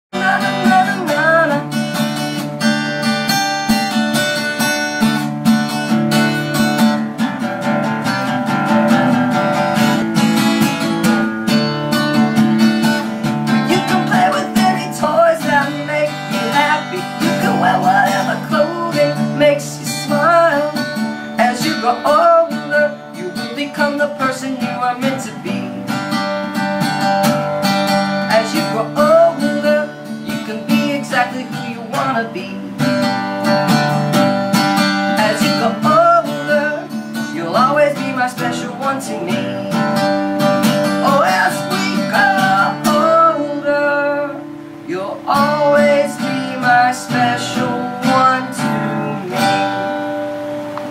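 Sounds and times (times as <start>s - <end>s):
strummed acoustic guitar: 0.1s - 50.9s
woman singing: 0.2s - 1.8s, 13.7s - 25.8s.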